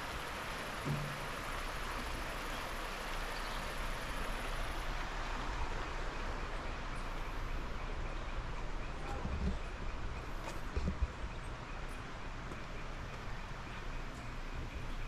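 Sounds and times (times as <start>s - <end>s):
river flowing over stones: 0.0s - 5.8s
soft thumps: 0.8s - 1.3s.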